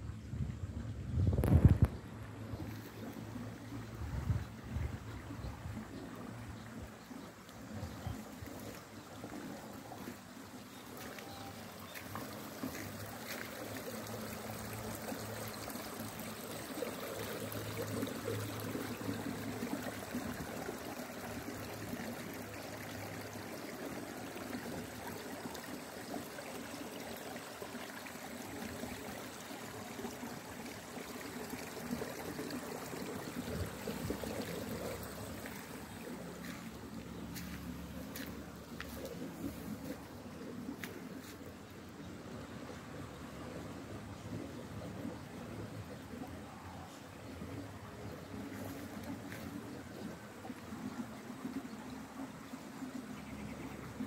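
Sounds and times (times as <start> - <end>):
flowing water rushing and trickling: 0.0 - 54.0.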